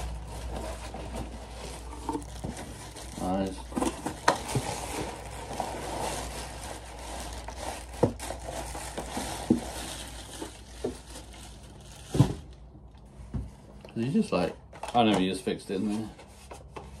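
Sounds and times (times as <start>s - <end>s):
bubble wrap crinkling: 0.0s - 12.9s.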